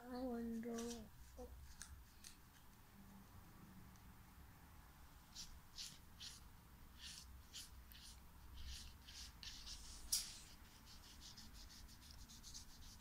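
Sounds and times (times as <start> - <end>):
marker scratching on paper: 5.3 - 13.0.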